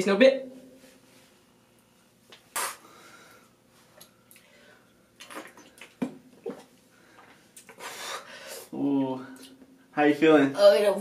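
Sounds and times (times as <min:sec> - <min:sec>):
mouth clicks: 0:02.4 - 0:02.8
person breathing sharply: 0:07.8 - 0:08.7.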